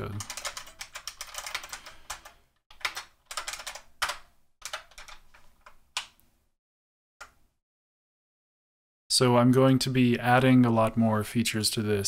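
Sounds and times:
typing on computer keyboard: 0:00.0 - 0:06.2.

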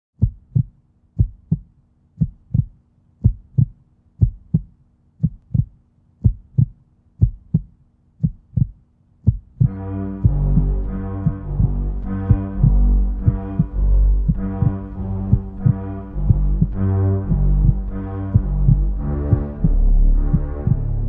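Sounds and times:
heartbeat thumps: 0:00.2 - 0:21.0
low droning chord: 0:09.7 - 0:21.0.

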